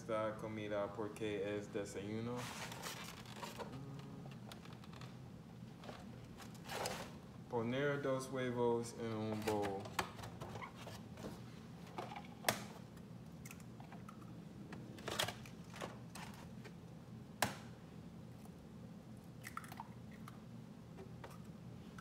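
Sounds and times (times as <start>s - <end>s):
low hum: 0.0s - 6.5s.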